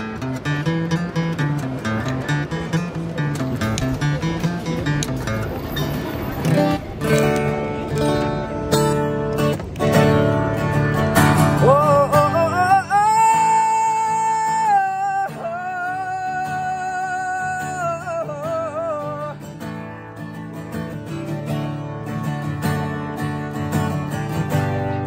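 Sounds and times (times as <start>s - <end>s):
acoustic guitar strummed: 0.0s - 25.0s
man singing long notes: 11.4s - 19.5s.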